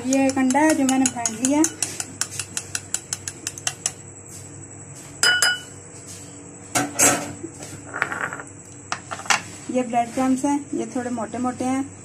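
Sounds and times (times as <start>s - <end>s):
spoon beating egg in bowl: 0.0s - 4.0s
ringing clink on crockery: 5.2s - 5.7s
dishes clattering: 5.2s - 5.8s, 6.8s - 9.4s.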